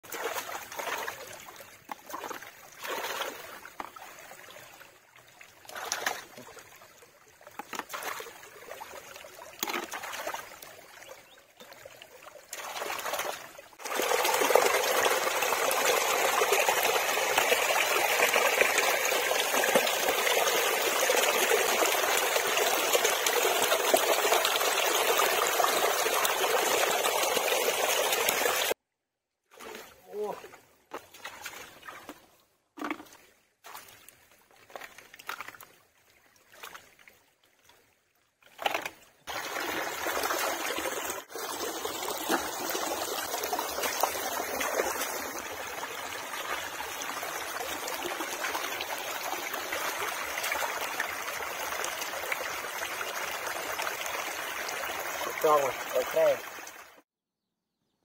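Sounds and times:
water splashing and trickling: 0:00.0 - 0:28.8, 0:29.5 - 0:57.1
loud rush of running water: 0:12.7 - 0:28.8, 0:39.3 - 0:57.0.

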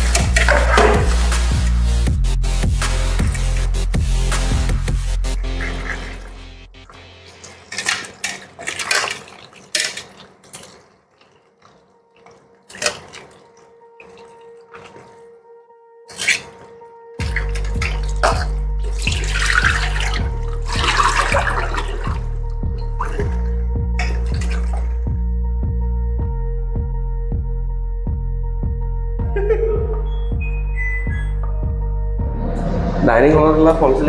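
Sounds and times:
splashing of hands in water: 0:00.0 - 0:01.8, 0:05.6 - 0:15.3, 0:16.1 - 0:25.1
background music with bass: 0:00.0 - 0:07.3, 0:16.8 - 0:34.0
tap water running into steel bowl: 0:17.2 - 0:23.4.

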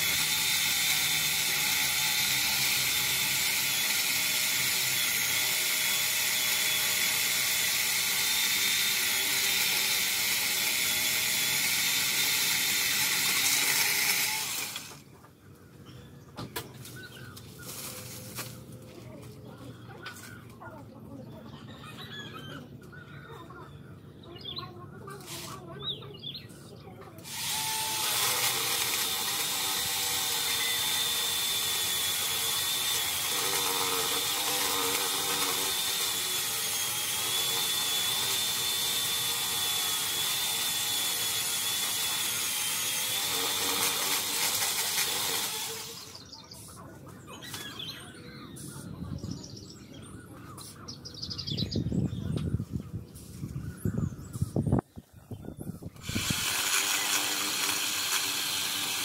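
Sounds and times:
electric chainsaw whining: 0:00.0 - 0:15.0, 0:27.2 - 0:46.3, 0:56.0 - 0:59.0.

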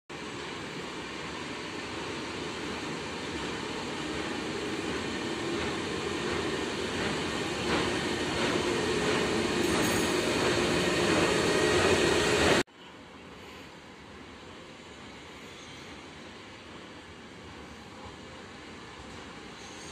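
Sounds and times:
freight train rolling: 0:00.1 - 0:12.6.

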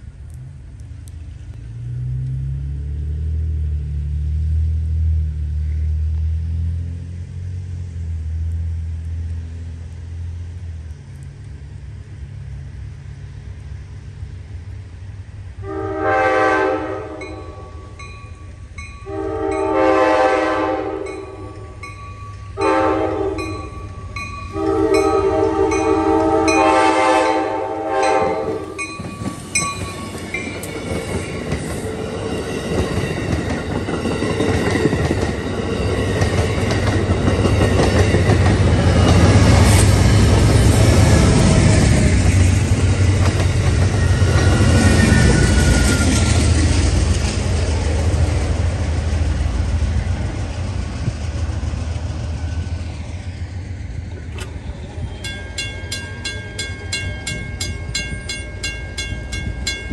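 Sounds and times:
locomotive air horn blasts: 0:15.6 - 0:18.0, 0:19.0 - 0:21.8, 0:22.6 - 0:23.7, 0:24.5 - 0:28.8.

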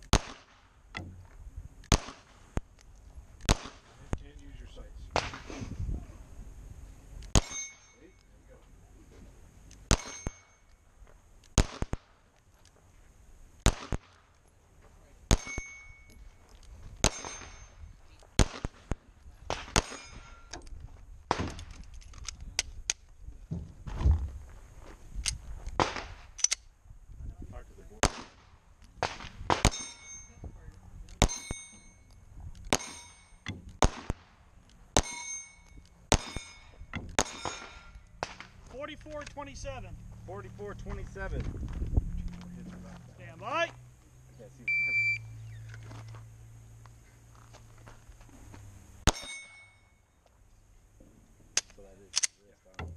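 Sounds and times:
pistol shots: 0:00.0 - 0:00.6, 0:01.9 - 0:02.3, 0:03.4 - 0:03.9, 0:07.3 - 0:07.8, 0:09.8 - 0:10.5, 0:11.5 - 0:12.2, 0:13.6 - 0:14.3, 0:15.3 - 0:15.8, 0:17.0 - 0:17.5, 0:18.4 - 0:20.2, 0:28.0 - 0:30.0, 0:32.6 - 0:35.2, 0:36.1 - 0:38.5, 0:49.0 - 0:49.6
bullets clanging on steel targets: 0:07.3 - 0:08.3, 0:09.9 - 0:10.8, 0:15.3 - 0:16.3, 0:17.0 - 0:17.9, 0:19.7 - 0:20.7, 0:29.5 - 0:33.8, 0:35.0 - 0:38.5, 0:49.0 - 0:50.0.

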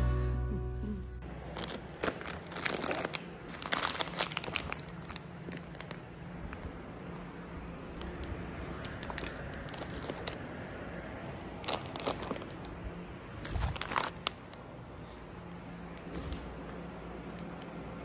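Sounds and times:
plastic packaging crinkling: 0:01.4 - 0:06.7, 0:08.0 - 0:10.4, 0:11.6 - 0:14.7.

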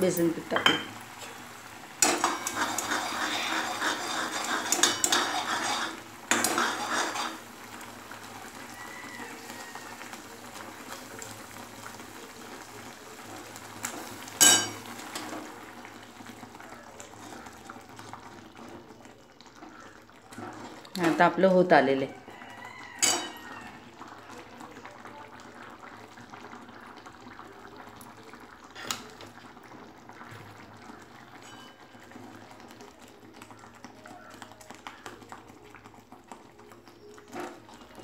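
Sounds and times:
metal spoon stirring in pan: 0:00.0 - 0:07.7, 0:13.9 - 0:15.6, 0:19.7 - 0:21.4, 0:22.2 - 0:23.8, 0:31.4 - 0:32.1
spoon clinking on pan: 0:00.5 - 0:01.0, 0:02.0 - 0:03.0, 0:04.6 - 0:05.7, 0:14.4 - 0:15.3, 0:23.0 - 0:23.4, 0:31.4 - 0:31.8.

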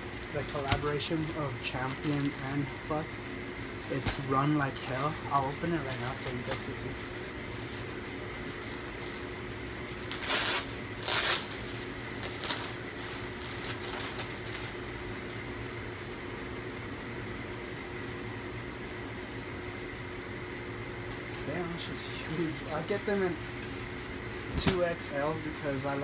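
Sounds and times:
plastic bag rustling: 0:00.0 - 0:03.0, 0:03.8 - 0:15.4
room hum with high whine: 0:00.0 - 0:26.0
plastic bag ripping: 0:00.1 - 0:03.0, 0:03.8 - 0:15.0.

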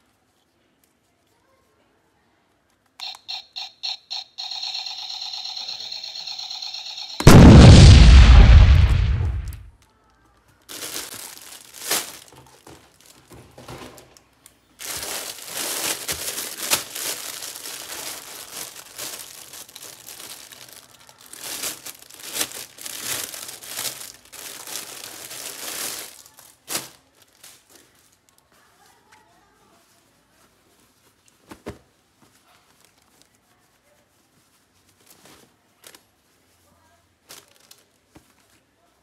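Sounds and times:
plastic bag crinkling: 0:10.6 - 0:13.4, 0:14.8 - 0:29.0, 0:37.2 - 0:38.6.

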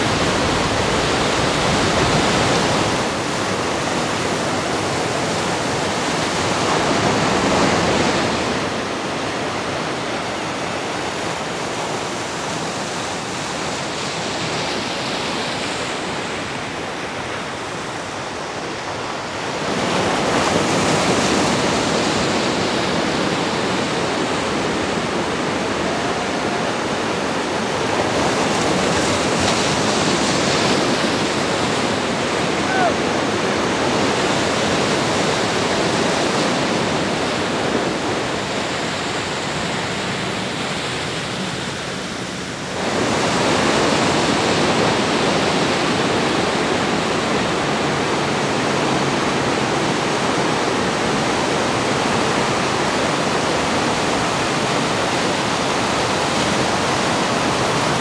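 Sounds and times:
ocean waves breaking: 0:00.0 - 0:58.0.

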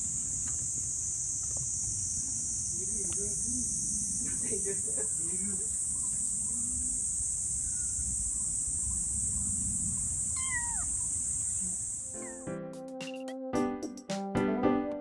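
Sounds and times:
steady high hiss: 0:00.0 - 0:12.4
kitten mewing: 0:10.3 - 0:11.0, 0:12.1 - 0:12.4.

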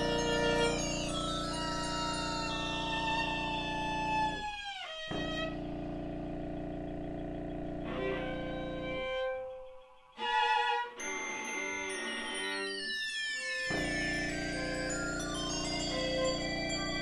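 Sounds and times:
loud rich sound: 0:00.0 - 0:04.5, 0:07.8 - 0:17.0
high tone sliding downward: 0:00.0 - 0:11.7, 0:13.3 - 0:17.0
steady low drone: 0:05.1 - 0:09.8.

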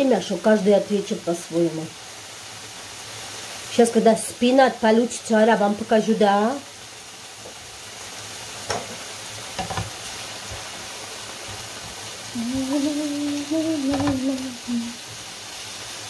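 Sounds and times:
spinach sizzling in a pan: 0:00.0 - 0:16.0
woman humming: 0:12.3 - 0:15.1.

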